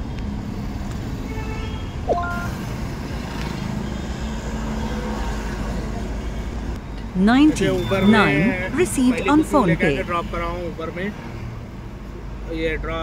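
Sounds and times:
rising electronic chime: 2.1 - 2.6.

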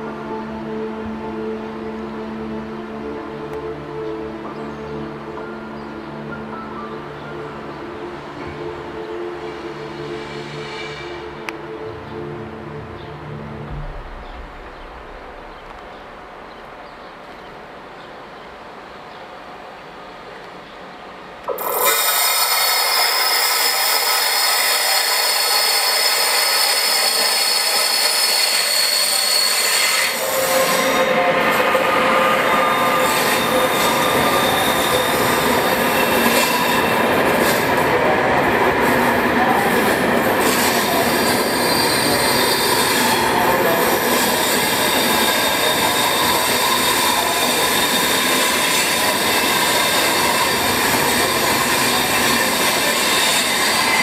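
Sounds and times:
loud low train rumble: 0.0 - 21.6, 22.5 - 54.0
train wheel squeal: 9.5 - 11.4, 21.6 - 37.9, 38.8 - 54.0.

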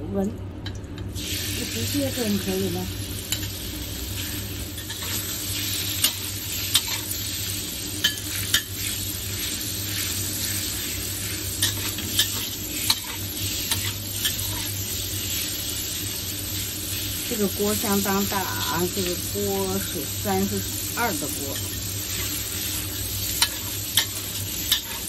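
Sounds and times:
pork sizzling in hot oil: 1.0 - 25.0
metal spatula scraping wok: 8.1 - 14.8, 21.4 - 25.0.

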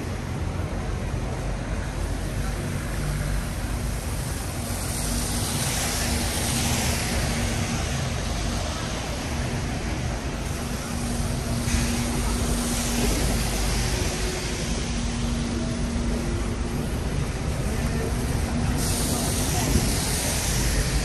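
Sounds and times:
traffic engine hum: 0.0 - 21.0
tyre hiss on wet road: 0.0 - 21.0.

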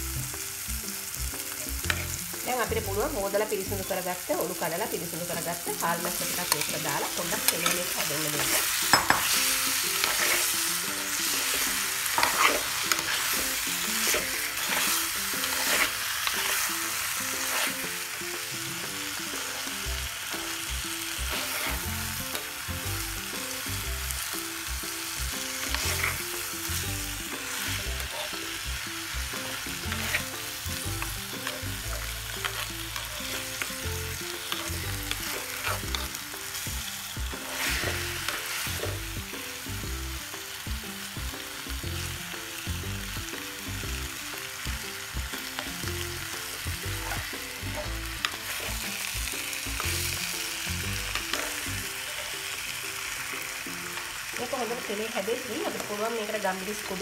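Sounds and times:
spoon clinking against pot: 8.5 - 9.4
spoon stirring in clay pot: 10.0 - 10.5, 12.2 - 13.3, 29.8 - 30.3.

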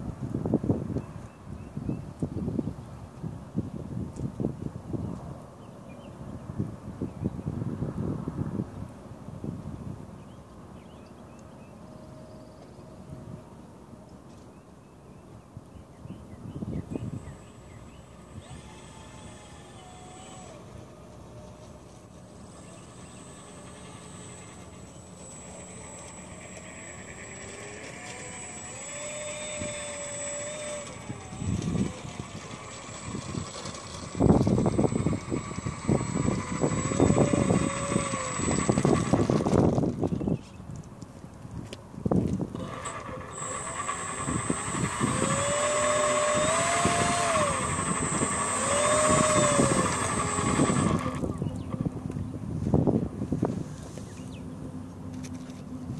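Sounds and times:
model plane motor whining: 16.6 - 40.4, 42.3 - 55.9.

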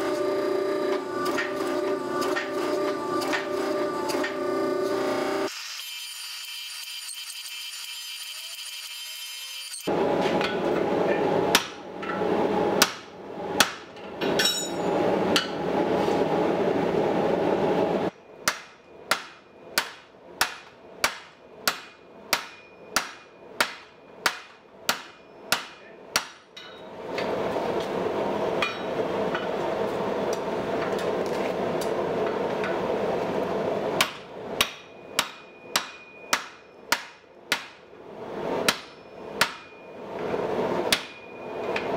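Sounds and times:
forge burner roar: 0.0 - 5.5, 9.8 - 18.6, 26.6 - 35.4, 37.4 - 41.9
hammer striking metal: 11.5 - 12.2, 12.8 - 15.6, 18.1 - 26.9, 28.6 - 29.6, 34.0 - 37.8, 38.6 - 40.0, 40.9 - 41.9.

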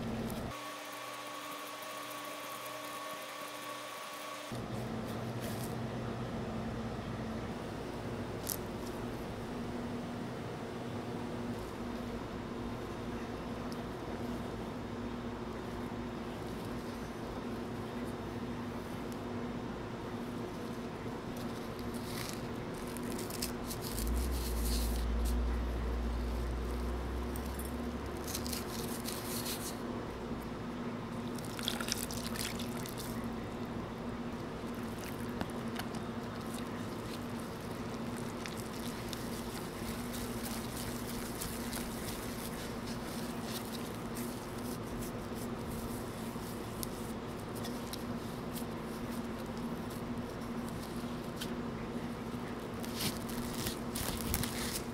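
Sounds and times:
faint steady hum: 0.0 - 54.9
liquid pouring into bowl: 31.2 - 33.2.

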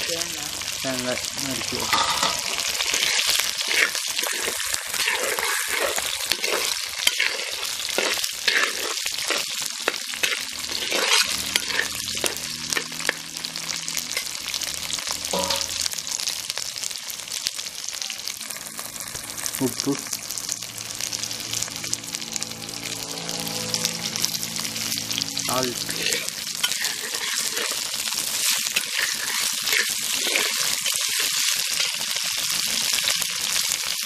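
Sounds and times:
food sizzling in oil: 0.0 - 34.0
spatula scraping a pot: 1.8 - 13.2, 25.8 - 31.9.

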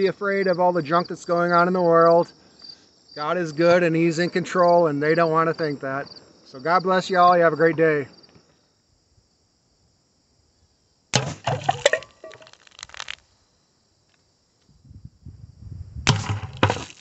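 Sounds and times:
tin can hit and clattering: 11.2 - 13.1, 16.1 - 17.0.

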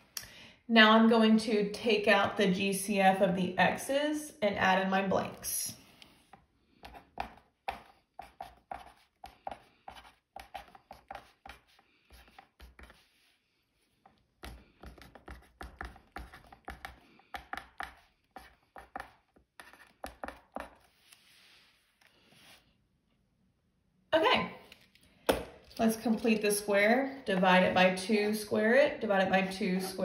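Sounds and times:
pen writing on paper: 6.8 - 13.3, 14.4 - 21.0.

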